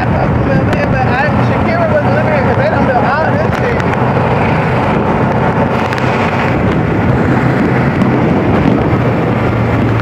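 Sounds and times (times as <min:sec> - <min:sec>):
vehicle hum: 0:00.0 - 0:10.0
wind buffeting microphone: 0:00.0 - 0:10.0.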